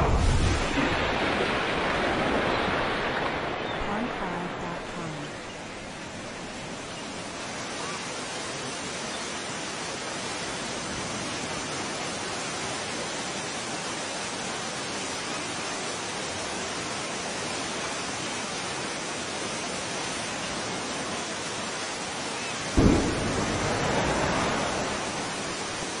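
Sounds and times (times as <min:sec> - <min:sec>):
rushing hiss: 0:22.4 - 0:26.0.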